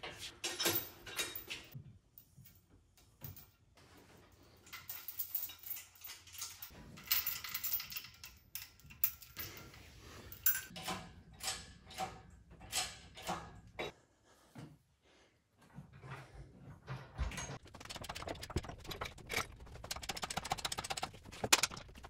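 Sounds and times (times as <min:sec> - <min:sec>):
steel chain jangling against metal: 0:04.6 - 0:10.8.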